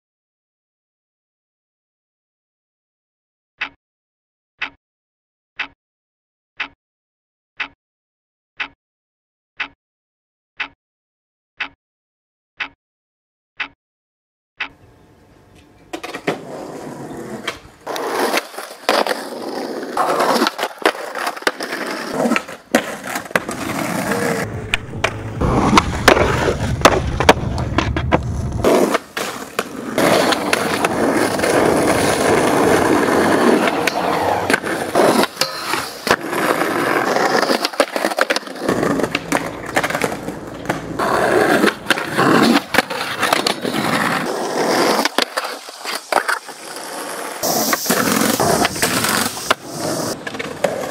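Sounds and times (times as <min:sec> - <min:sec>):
skateboard clacking on ground: 0:15.6 - 0:50.9
skateboard wheels rolling on asphalt: 0:15.9 - 0:50.9.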